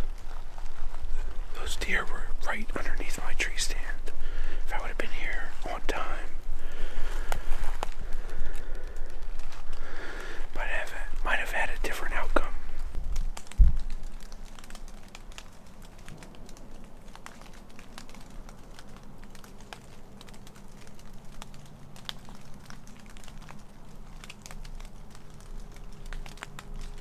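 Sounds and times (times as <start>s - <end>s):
low steady hum: 0.0s - 27.0s
clothing and gear rustling: 7.0s - 8.5s.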